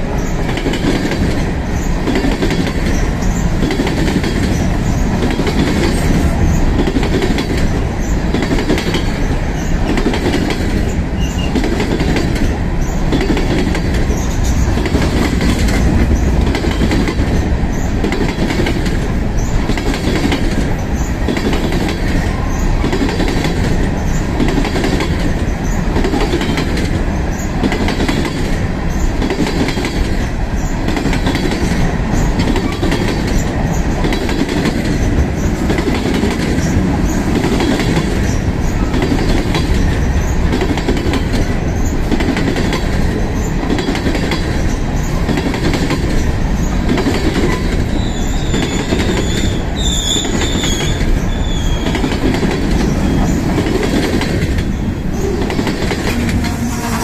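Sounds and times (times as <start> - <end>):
freight train rumbling past: 0.0 - 57.0
high wheel squeal: 47.5 - 52.1.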